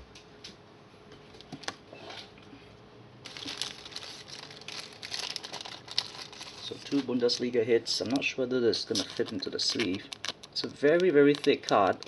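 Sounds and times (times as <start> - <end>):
plastic sleeve crinkling: 3.2 - 12.0.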